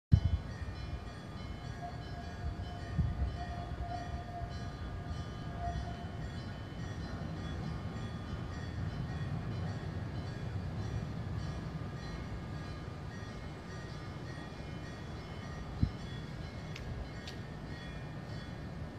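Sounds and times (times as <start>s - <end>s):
level crossing alarm ringing: 1.0s - 9.1s.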